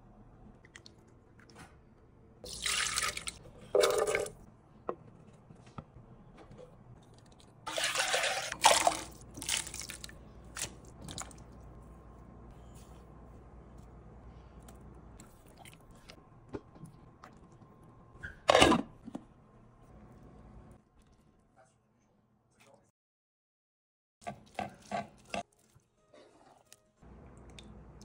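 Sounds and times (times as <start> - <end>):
liquid pouring into a pot: 2.5 - 4.4.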